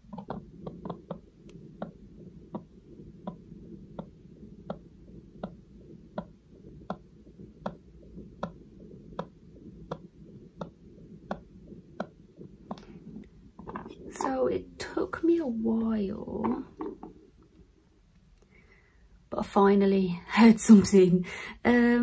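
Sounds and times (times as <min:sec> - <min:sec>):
heartbeat thuds: 0:00.0 - 0:17.3
low rumble: 0:00.0 - 0:17.8.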